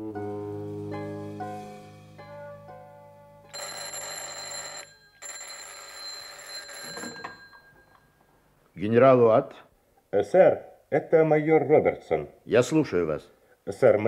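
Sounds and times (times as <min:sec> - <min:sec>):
telephone bell ringing: 0:03.5 - 0:08.1.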